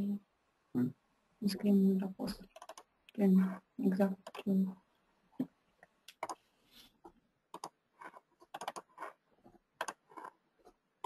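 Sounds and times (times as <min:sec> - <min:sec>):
typing on computer keyboard: 0:02.4 - 0:02.9, 0:07.5 - 0:07.8, 0:08.4 - 0:09.1, 0:09.8 - 0:10.3.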